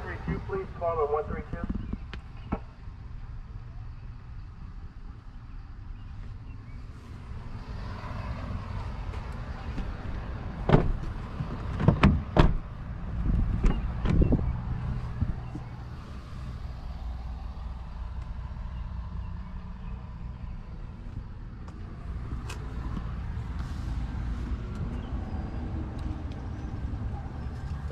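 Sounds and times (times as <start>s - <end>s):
steady low rumble: 8.4s - 27.9s
knocks and thumps in a vehicle: 10.6s - 14.5s.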